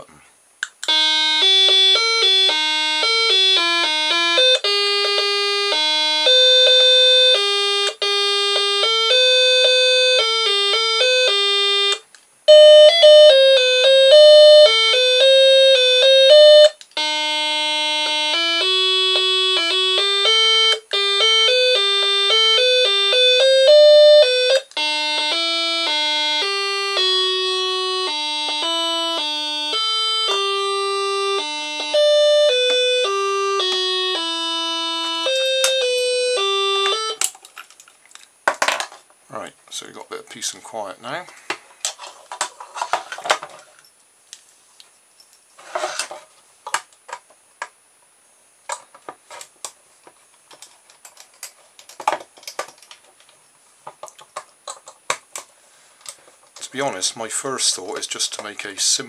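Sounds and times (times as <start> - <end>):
electronic doorbell chime melody: 0.9 - 37.2.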